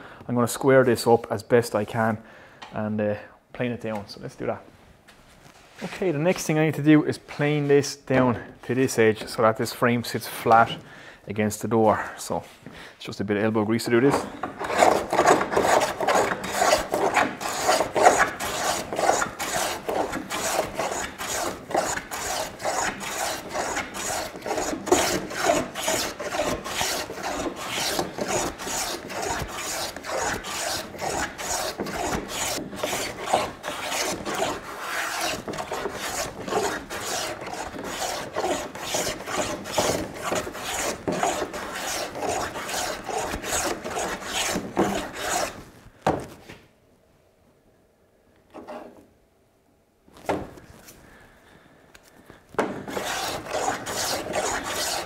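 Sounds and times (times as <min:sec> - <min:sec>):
hand plane rasping on wood: 0:14.1 - 0:45.6, 0:52.6 - 0:55.0.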